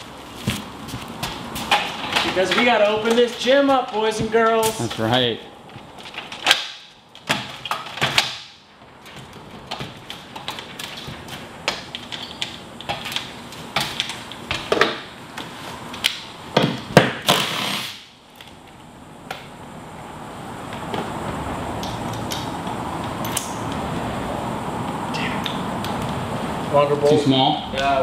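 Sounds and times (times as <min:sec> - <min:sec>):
boots on ladder rungs: 0:00.0 - 0:06.0
metal ladder knocks and clanks: 0:01.2 - 0:05.1.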